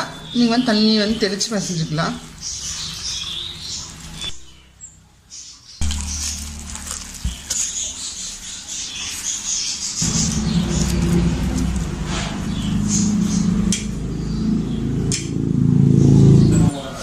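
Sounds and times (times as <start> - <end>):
hands squelching wet batter: 5.8 - 14.0
low steady hum: 5.8 - 16.7.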